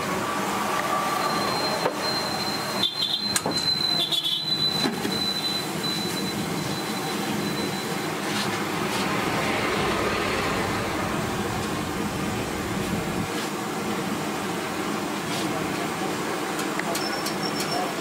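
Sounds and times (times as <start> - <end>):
low rumble: 9.0 - 13.3.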